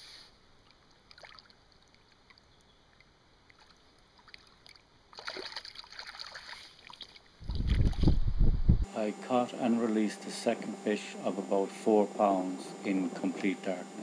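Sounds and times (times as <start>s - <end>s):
water splashing in shallows: 0.6s - 8.2s.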